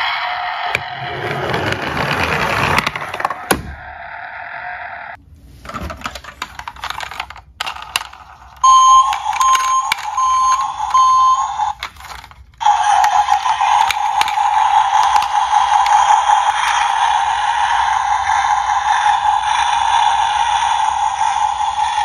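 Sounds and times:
high electronic beeps: 8.6s - 11.8s.

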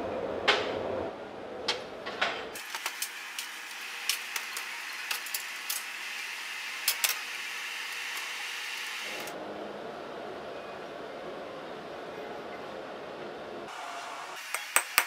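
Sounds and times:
coals popping and crackling: 2.6s - 9.3s
forge fire hissing: 2.6s - 9.4s.

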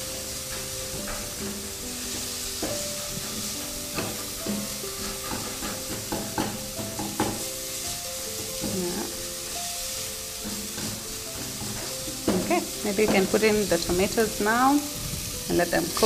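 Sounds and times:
onions sizzling in oil: 0.0s - 16.0s
wooden spatula scraping a pot: 0.4s - 7.4s, 10.3s - 16.0s.

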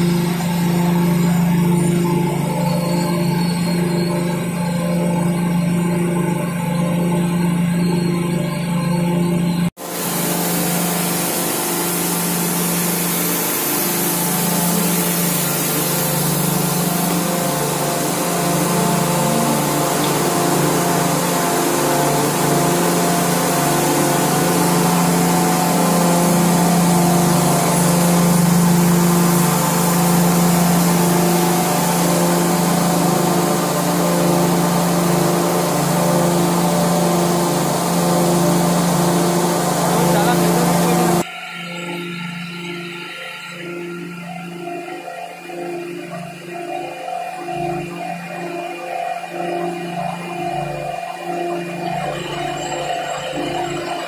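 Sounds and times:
machine drone: 0.0s - 41.3s
pulsing high note: 9.8s - 43.6s
steady hiss: 9.8s - 43.6s.

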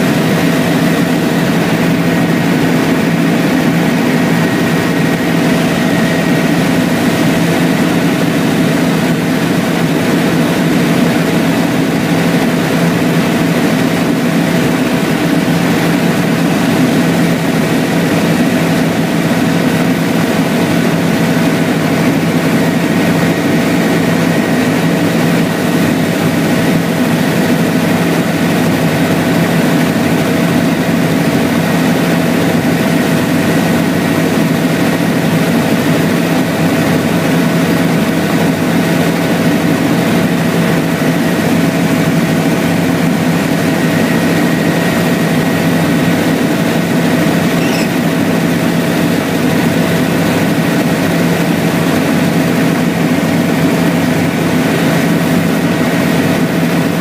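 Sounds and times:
helicopter engine and rotor drone: 0.0s - 57.0s
constant whining tones: 40.2s - 53.4s.

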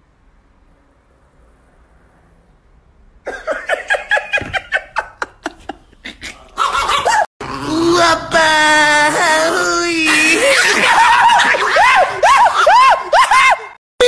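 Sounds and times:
man laughing: 3.3s - 7.3s, 10.1s - 13.7s.

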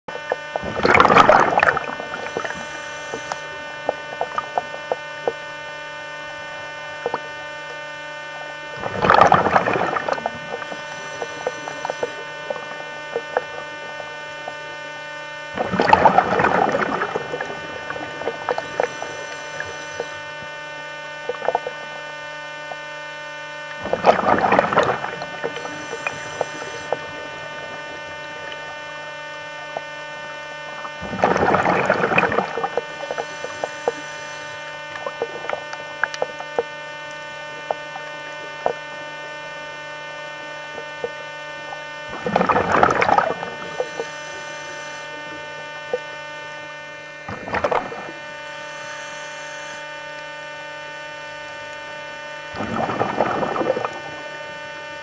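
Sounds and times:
regulator bubbling exhalations: 0.1s - 5.4s, 6.7s - 7.8s, 8.4s - 15.0s, 15.6s - 20.6s, 23.7s - 39.2s, 39.8s - 46.1s, 47.2s - 48.3s, 52.5s - 54.4s
steady electrical hum: 0.1s - 55.0s
small clicks: 34.9s - 37.9s.

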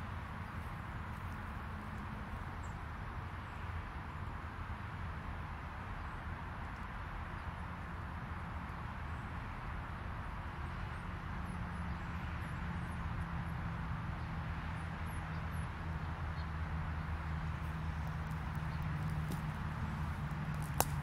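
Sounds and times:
distant road traffic: 0.0s - 21.0s
low engine hum: 7.6s - 21.0s.

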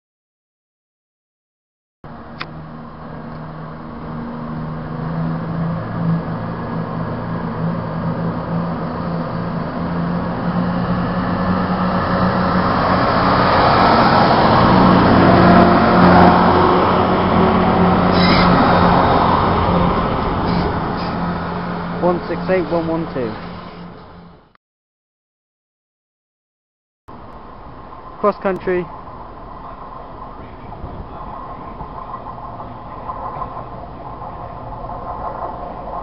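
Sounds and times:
diesel train passing: 2.1s - 24.5s, 27.1s - 36.0s
brief high-pitched squeak: 18.1s - 18.6s, 20.4s - 21.2s.

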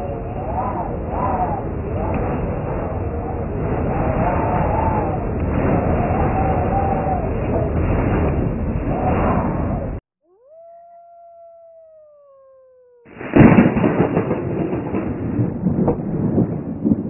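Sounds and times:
dense noisy sound: 0.0s - 10.0s
howl-like sliding tone: 0.0s - 10.0s
loud noisy clamour: 0.0s - 12.0s.

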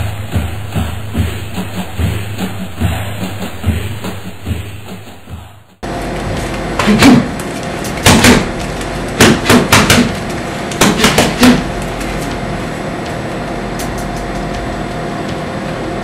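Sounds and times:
steady background hum: 0.0s - 16.0s
gloved fists thumping wall: 9.2s - 10.1s.

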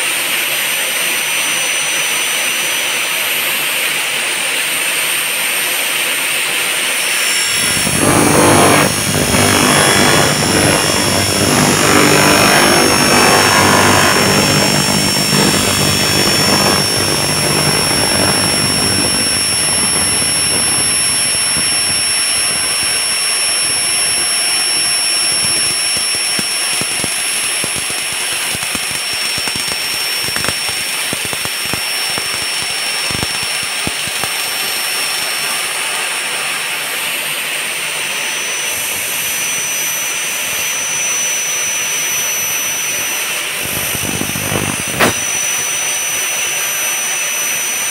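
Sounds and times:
circular saw whine: 0.0s - 47.9s
low rumble: 7.2s - 24.1s.

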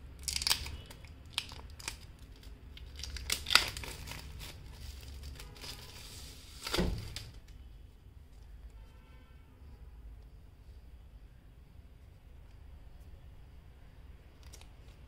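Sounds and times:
plastic wrap crinkling and tearing: 0.0s - 7.4s.

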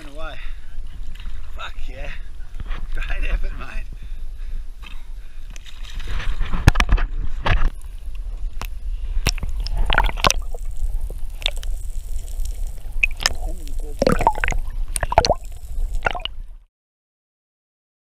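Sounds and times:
steady low rumble: 0.4s - 16.6s
water sloshing and gurgling: 0.7s - 3.0s, 4.7s - 16.6s.

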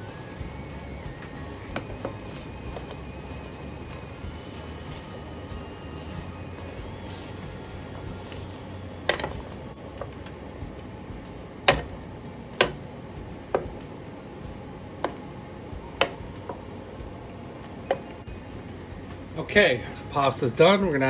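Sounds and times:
spatula stirring thick sauce: 0.1s - 9.7s.

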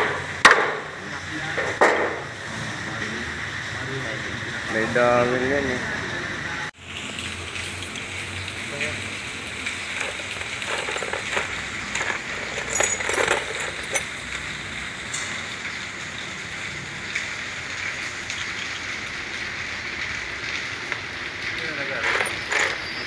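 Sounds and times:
tools clinking in metal toolbox: 9.8s - 14.3s, 22.0s - 23.0s.

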